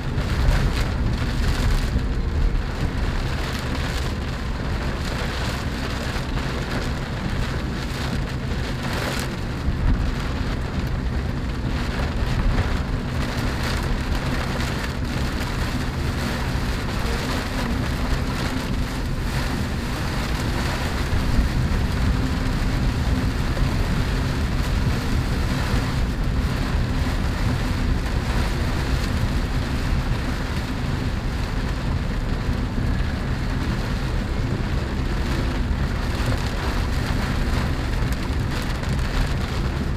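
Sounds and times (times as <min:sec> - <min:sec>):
car engine and road noise: 0:00.0 - 0:39.9
rain on car roof: 0:00.0 - 0:39.9.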